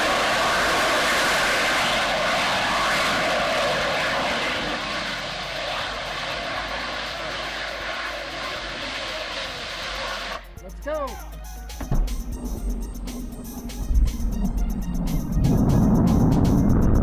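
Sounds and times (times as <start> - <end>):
rocket engine rushing: 0.0 - 10.6, 11.8 - 17.0.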